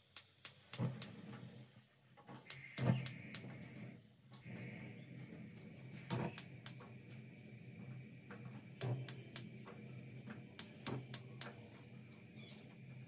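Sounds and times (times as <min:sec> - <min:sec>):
gas hob spark igniter clicking: 0:00.0 - 0:01.3, 0:02.4 - 0:03.8, 0:05.5 - 0:13.0.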